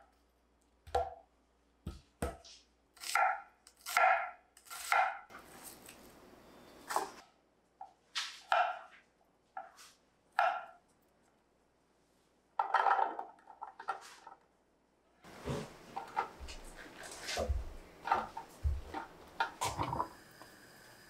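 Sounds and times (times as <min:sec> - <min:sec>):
scraping and handling noise: 0:15.3 - 0:20.1.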